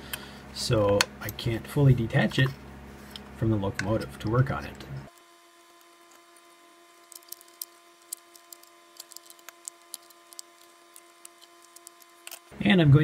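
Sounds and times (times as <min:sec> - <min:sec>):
faint steady hum: 0:00.0 - 0:13.0
screwdriver and parts clicking: 0:07.0 - 0:12.5.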